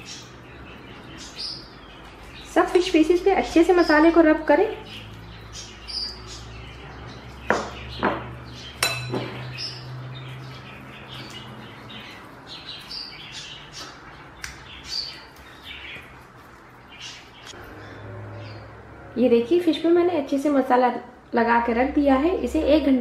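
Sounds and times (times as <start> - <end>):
soft wet rubbing: 15.1 - 17.5.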